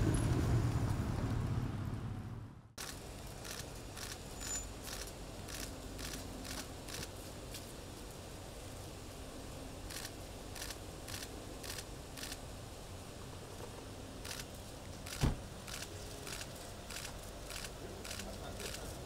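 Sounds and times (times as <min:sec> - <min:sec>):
camera shutters clicking: 0:15.1 - 0:18.9
heavy thud: 0:15.2 - 0:15.5.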